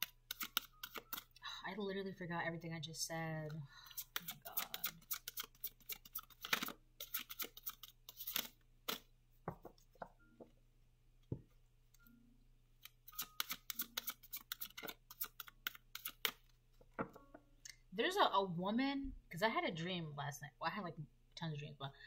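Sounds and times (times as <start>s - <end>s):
cards being shuffled: 0.0s - 1.4s, 3.9s - 9.8s, 12.8s - 17.2s.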